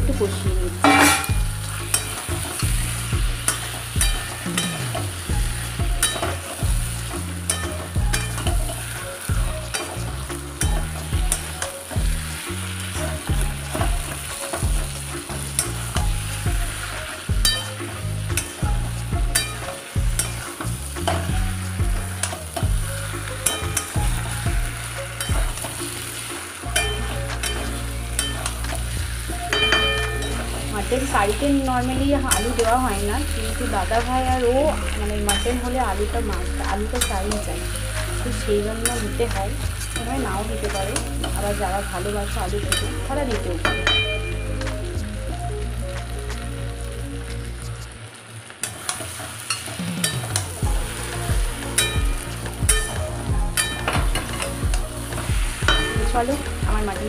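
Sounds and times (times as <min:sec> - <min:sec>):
frying sizzle: 0:00.0 - 0:57.0
metal spatula scraping a pan: 0:00.1 - 0:31.6, 0:32.2 - 0:44.4.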